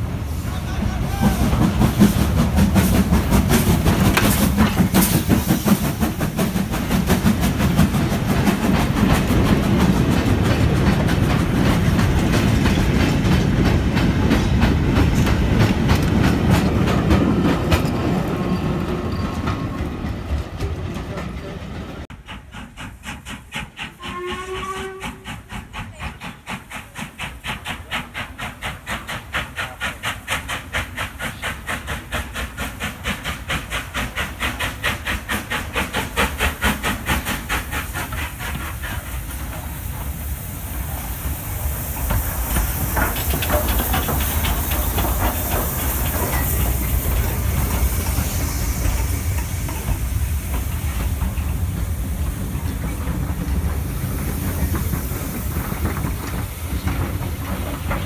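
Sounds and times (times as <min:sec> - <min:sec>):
loud steam hiss: 0:00.0 - 0:20.9, 0:21.6 - 0:58.0
steam locomotive chuffing: 0:00.0 - 0:58.0
wheels clattering on rails: 0:00.7 - 0:40.4, 0:41.3 - 0:58.0
steam whistle: 0:24.0 - 0:25.3.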